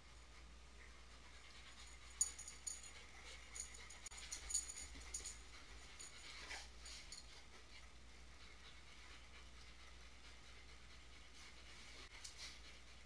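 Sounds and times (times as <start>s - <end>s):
dog tags jingling: 2.0s - 6.2s.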